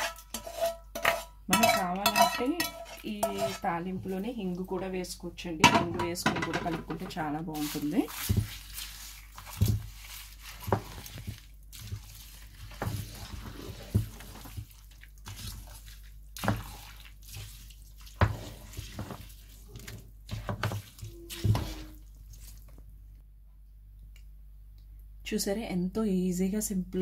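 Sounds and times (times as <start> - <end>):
spoon scraping metal pot: 0.0 - 3.8
wet squelching rice: 7.4 - 22.9.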